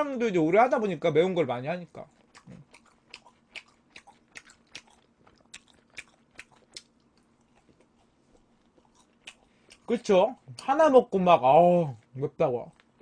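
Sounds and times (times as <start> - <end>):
person chewing crunchy food: 2.0 - 10.0.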